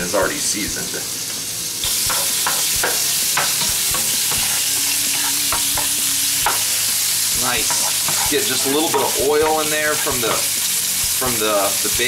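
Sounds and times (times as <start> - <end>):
bacon sizzling in a frying pan: 0.0 - 12.0
spoon scraping and clicking in pan: 1.8 - 6.7, 7.6 - 9.0.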